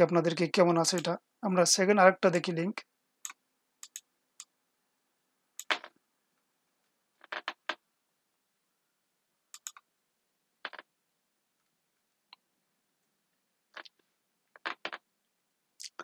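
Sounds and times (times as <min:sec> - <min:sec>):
mouse and keyboard clicking: 0:03.2 - 0:04.0, 0:09.6 - 0:09.8.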